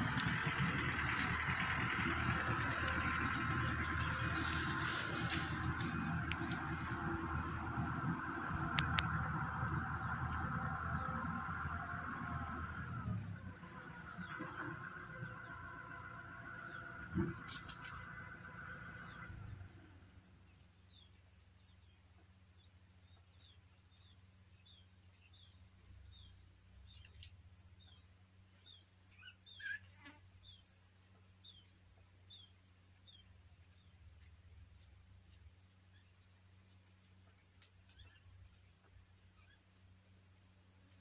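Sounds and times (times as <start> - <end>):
low hum: 0.0 - 21.0
insects trilling: 0.0 - 41.0.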